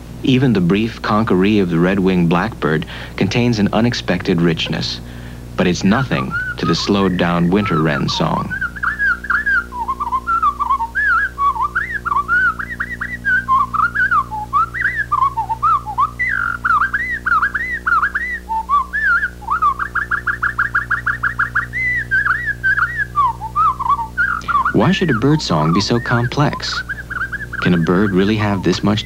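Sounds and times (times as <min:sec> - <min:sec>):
low electrical hum: 0:00.0 - 0:29.0
rapid bird trill: 0:00.3 - 0:29.0
slowed bird song whistles: 0:05.8 - 0:29.0.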